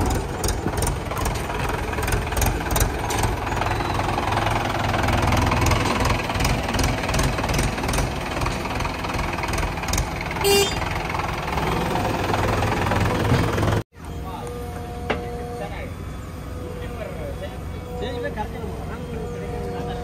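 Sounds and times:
diesel engines knocking: 0.0 - 13.8
short beep: 10.5 - 10.9.

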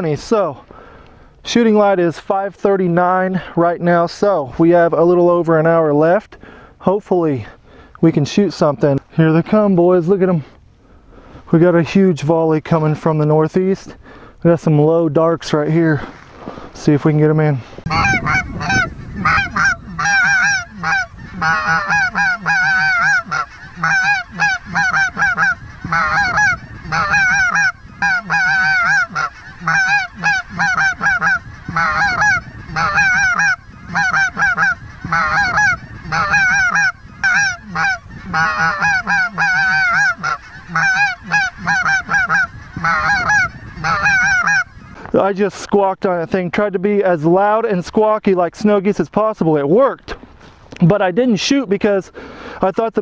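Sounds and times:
goose call squawks: 17.9 - 45.0.

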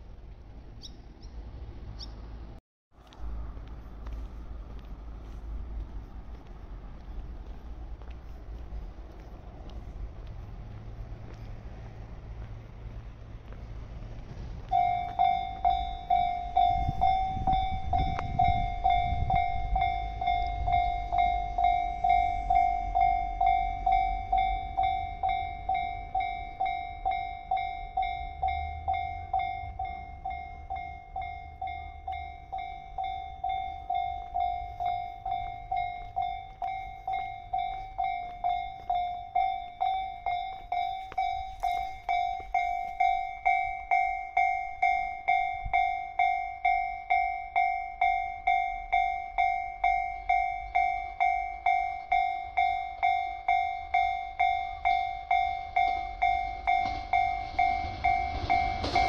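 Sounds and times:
level crossing electronic bell ringing: 14.7 - 59.0.

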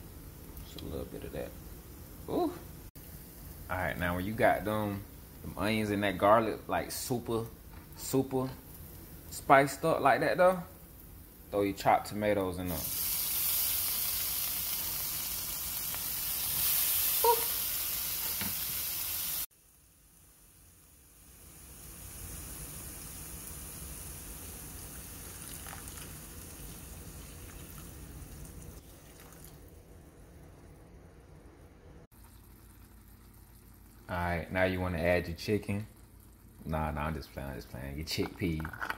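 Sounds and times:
tomatoes sizzling in frying pan: 1.2 - 28.8.

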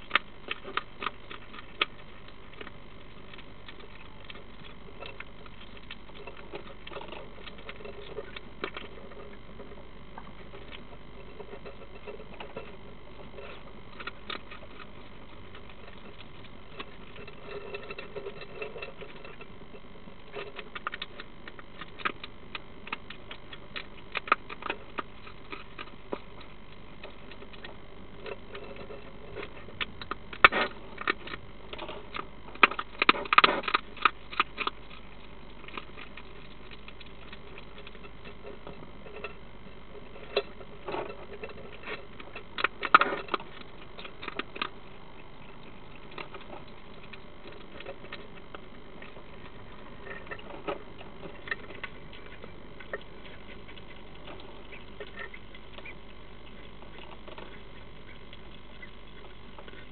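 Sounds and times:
hedgehog crunching food: 0.0 - 59.9.

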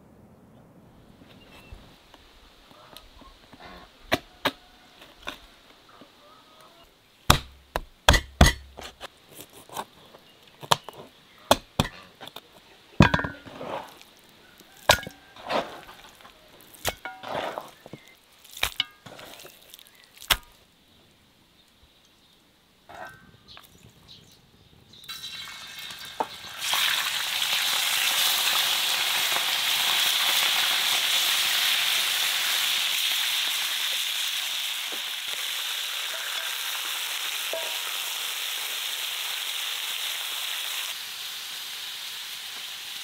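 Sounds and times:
cleaver chopping on wooden board: 7.3 - 8.9.

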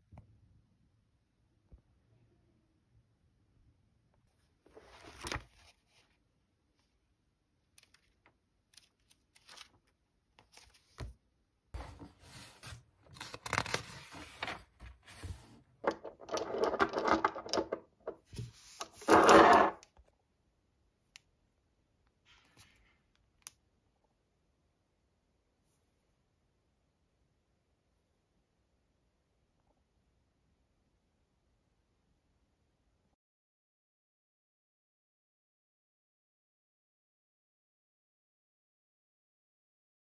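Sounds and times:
book pages rustling: 4.6 - 6.2, 7.8 - 11.2, 11.8 - 19.7.

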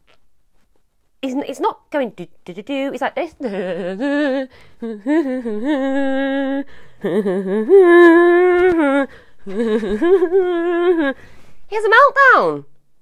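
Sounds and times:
woman humming: 3.4 - 11.2.

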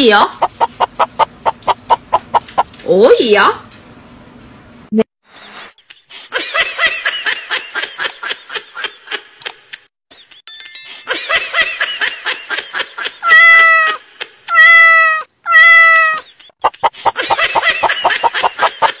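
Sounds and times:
cat meowing: 13.3 - 13.9, 14.5 - 16.2.

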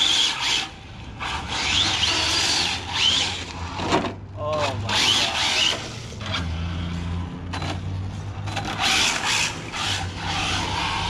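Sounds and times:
rc car motor whining: 0.0 - 11.0.

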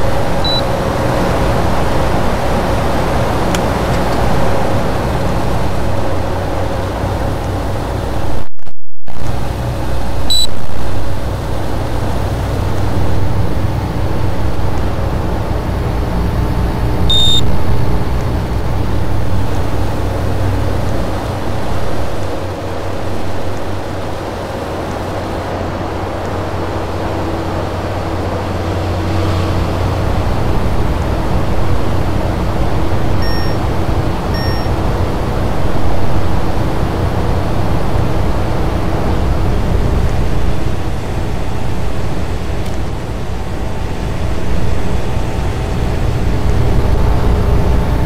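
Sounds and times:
air conditioner running: 0.0 - 8.4, 9.2 - 48.0
short electronic beeps: 0.4 - 0.7, 10.3 - 10.6, 17.1 - 17.5, 33.2 - 33.6, 34.4 - 34.7.

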